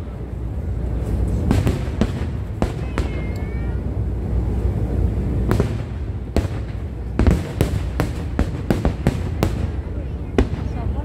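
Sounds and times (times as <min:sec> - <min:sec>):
low rumble: 0:00.0 - 0:11.0
fireworks bursting with sharp bangs: 0:01.0 - 0:03.8, 0:05.2 - 0:11.0.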